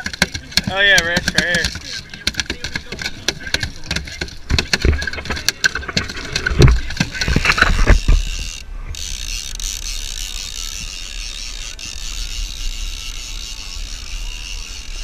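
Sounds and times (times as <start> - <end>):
fish thrashing on boat deck: 0.0 - 8.4.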